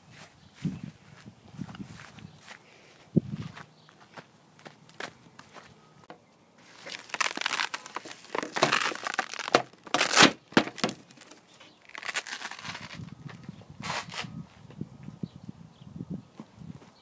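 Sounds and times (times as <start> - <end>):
plastic toy rustling and crinkling: 6.6 - 13.1.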